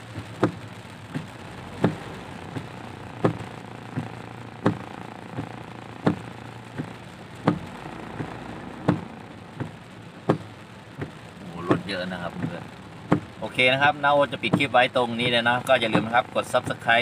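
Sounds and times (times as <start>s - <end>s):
engine and road hum: 0.0s - 17.0s
windscreen wipers knocking: 0.0s - 17.0s.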